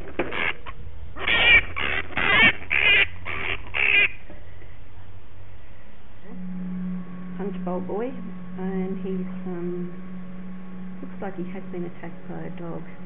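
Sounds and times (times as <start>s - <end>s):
flying fox screaming: 0.3s - 4.2s.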